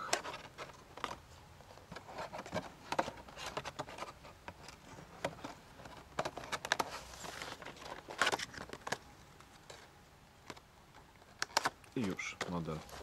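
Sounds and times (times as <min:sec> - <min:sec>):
cardboard box rustling and scraping: 0:01.6 - 0:08.9.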